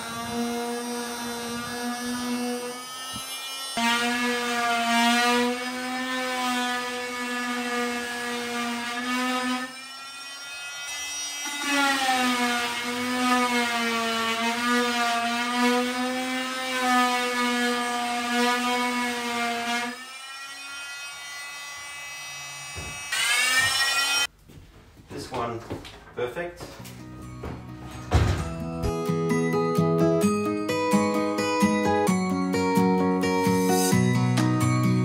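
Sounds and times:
multi-tool sanding wood: 0.0s - 24.3s.

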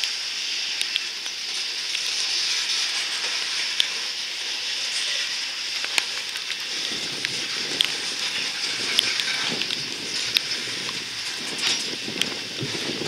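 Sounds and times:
train wheels hissing: 0.0s - 13.0s.

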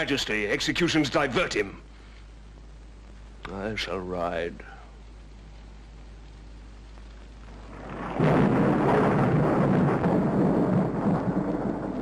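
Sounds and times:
thunder rumbling: 7.4s - 12.0s.

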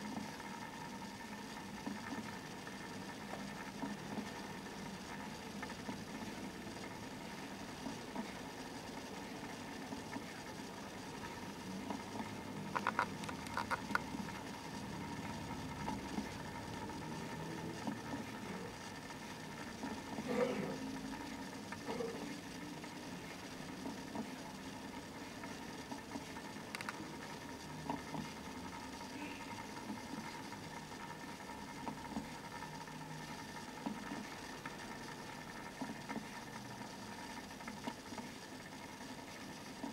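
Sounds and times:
faint clicks: 12.7s - 14.3s, 26.6s - 27.1s.

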